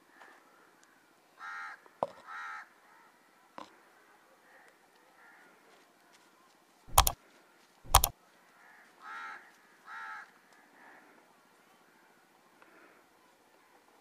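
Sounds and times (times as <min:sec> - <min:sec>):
crow cawing: 0:08.6 - 0:10.3.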